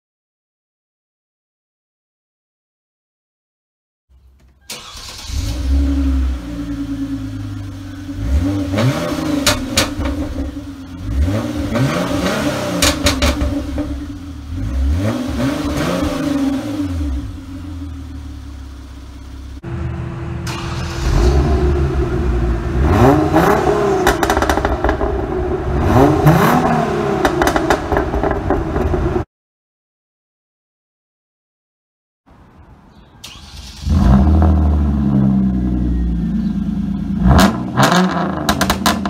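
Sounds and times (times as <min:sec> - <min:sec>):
car engine idling: 0:04.1 - 0:25.8, 0:34.6 - 0:37.8
car engine revving: 0:04.7 - 0:29.2, 0:33.3 - 0:39.0.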